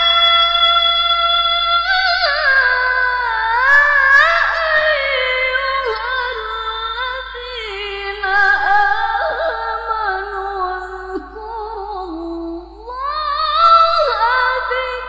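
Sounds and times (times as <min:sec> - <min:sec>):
woman reciting melodically: 0:00.0 - 0:15.0.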